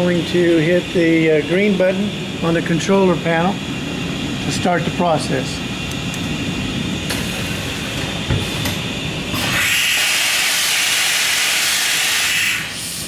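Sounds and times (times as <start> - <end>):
machine running noise: 0.0 - 13.0
loud hiss of air: 7.1 - 13.0.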